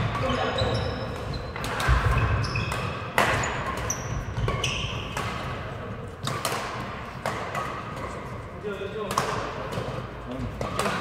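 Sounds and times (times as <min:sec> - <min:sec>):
shoes squeaking on court floor: 0:00.0 - 0:06.2
rackets striking shuttlecock: 0:00.0 - 0:11.0.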